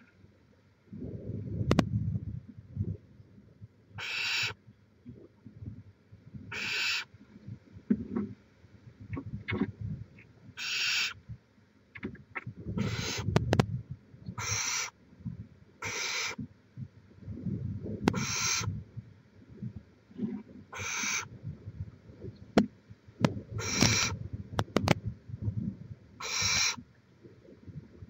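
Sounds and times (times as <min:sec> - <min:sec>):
owl nestlings rasping hisses: 0:04.0 - 0:04.6, 0:06.5 - 0:07.0, 0:10.6 - 0:11.2, 0:12.8 - 0:13.2, 0:14.4 - 0:14.9, 0:15.8 - 0:16.4, 0:18.1 - 0:18.7, 0:20.8 - 0:21.3, 0:23.6 - 0:24.2, 0:26.2 - 0:26.8.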